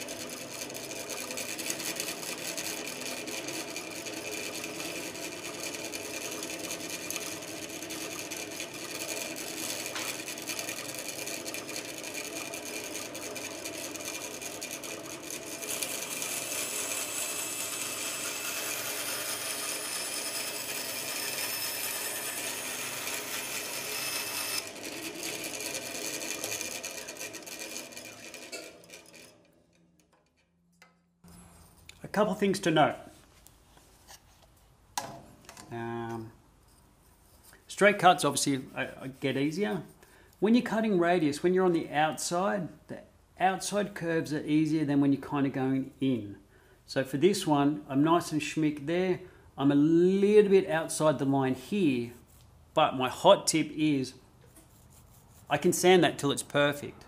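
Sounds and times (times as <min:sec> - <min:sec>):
bandsaw cutting wood: 0:00.0 - 0:29.5
motor hum: 0:00.0 - 0:30.2.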